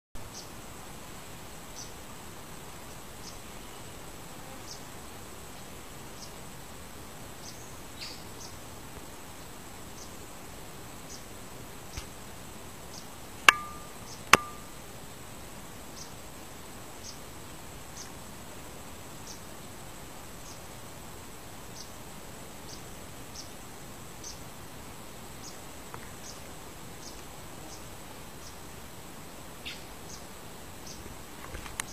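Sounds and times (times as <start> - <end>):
background hiss: 0.2 - 31.9
high insect whine: 0.2 - 31.9
bird chipping: 13.5 - 14.7
short high chirps: 13.5 - 14.7.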